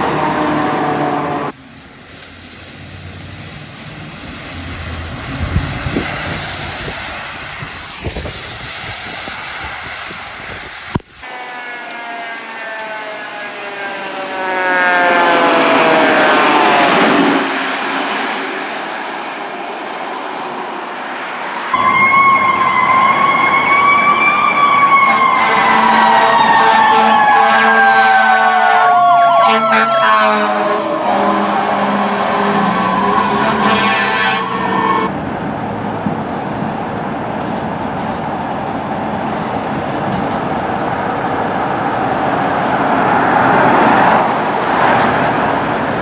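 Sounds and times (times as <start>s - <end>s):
fire truck siren wailing: 0.0s - 1.6s, 11.2s - 19.5s, 21.7s - 35.1s
road traffic: 0.0s - 46.0s
truck engine: 0.0s - 46.0s.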